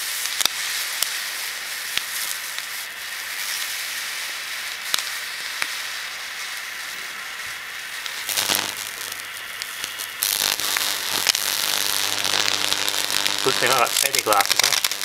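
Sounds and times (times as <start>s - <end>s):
electric arc hissing and crackling: 0.0s - 15.0s
mains buzz: 8.0s - 15.0s.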